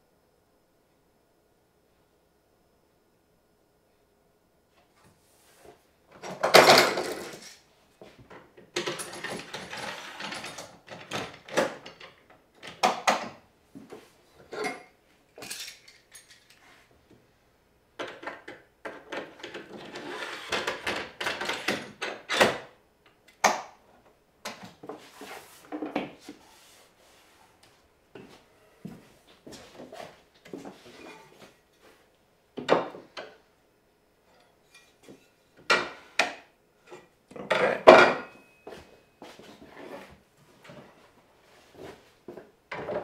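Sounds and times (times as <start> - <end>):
boards scraping on workbench: 19.8 - 20.8, 39.6 - 40.2.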